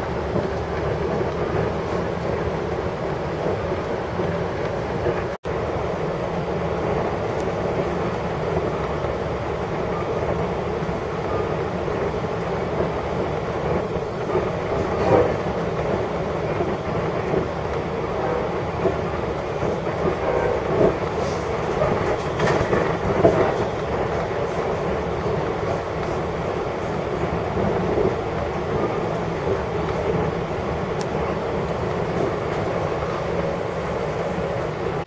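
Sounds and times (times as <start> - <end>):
train wheels rumbling on track: 0.0 - 35.0
train thumps: 12.7 - 33.5.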